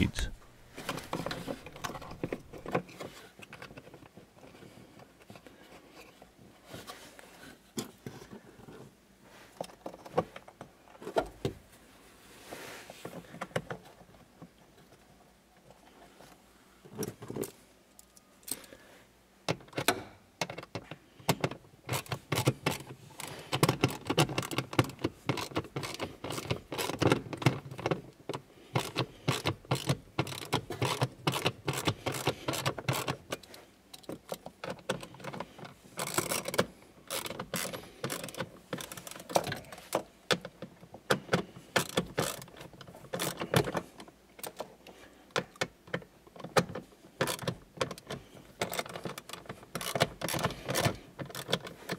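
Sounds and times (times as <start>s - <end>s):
socket ratchet clicking: 41.8s - 42.5s.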